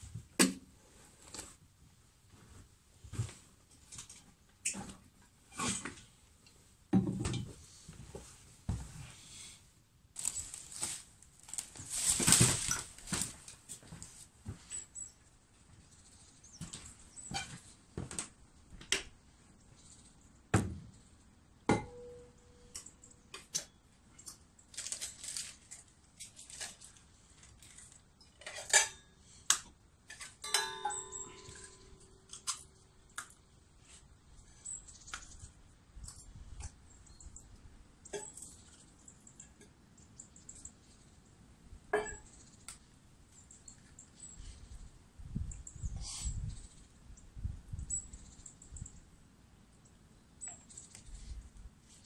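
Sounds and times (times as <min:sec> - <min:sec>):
metal dishes clinking: 0:30.2 - 0:32.6
metal dish ringing: 0:30.4 - 0:32.4.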